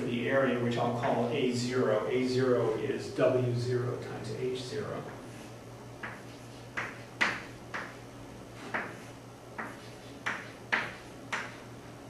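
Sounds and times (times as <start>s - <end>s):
chalk tapping and scratching: 5.1s - 8.0s, 8.6s - 11.7s.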